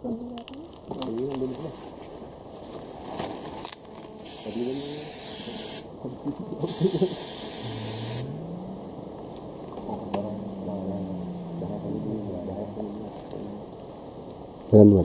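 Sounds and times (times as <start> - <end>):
aerosol spray hissing: 4.2 - 5.9, 6.6 - 8.3.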